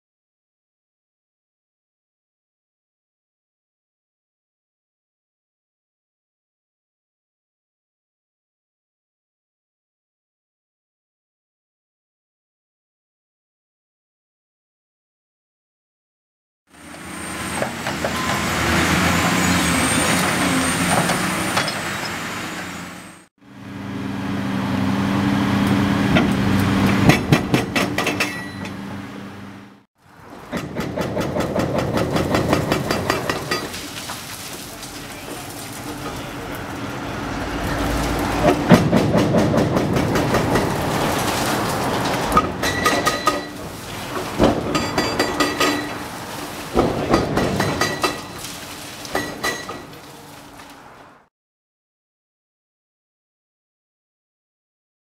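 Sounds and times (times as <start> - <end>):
excavator diesel engine under load: 16.8 - 33.6, 34.7 - 48.4
concrete breaking and rubble falling: 30.4 - 36.9, 37.6 - 50.7.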